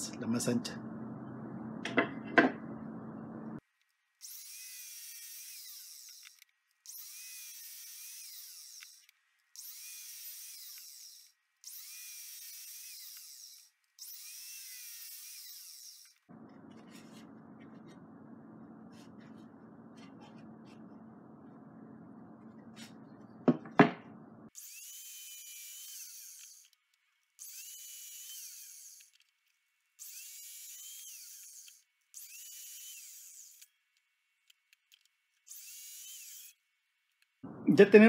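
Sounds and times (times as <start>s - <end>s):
miter saw cutting wood: 4.2s - 16.3s, 24.6s - 26.8s, 27.4s - 29.2s, 30.0s - 33.7s, 35.5s - 36.6s.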